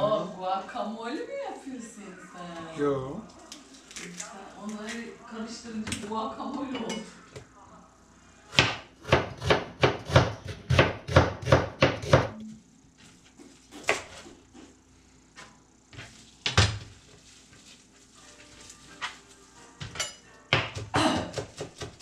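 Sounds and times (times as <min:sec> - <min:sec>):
knife chopping on wooden board: 0:08.6 - 0:12.3, 0:20.5 - 0:22.0.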